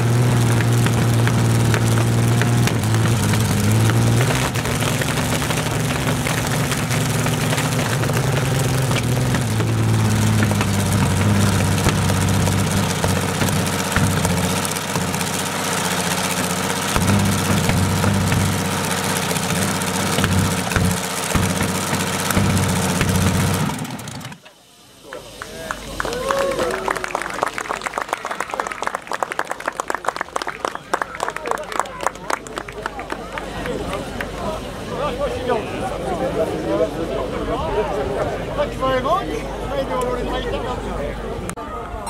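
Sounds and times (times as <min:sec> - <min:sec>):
aircraft engine rumbling: 0:00.0 - 0:24.5.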